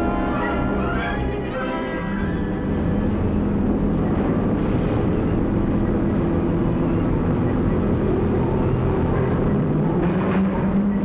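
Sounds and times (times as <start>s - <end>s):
machinery rumble and hum: 0.0s - 11.0s.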